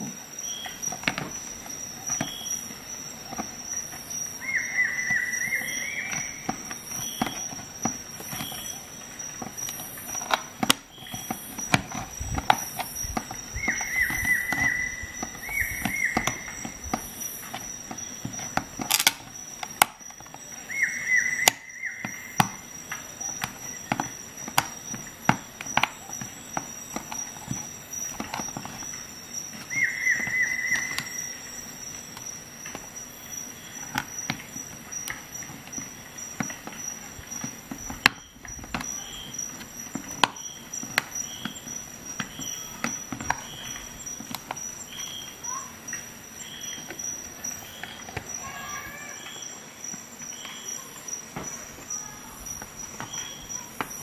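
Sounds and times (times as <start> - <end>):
can opener metal clicks and crunches: 18.8 - 20.0.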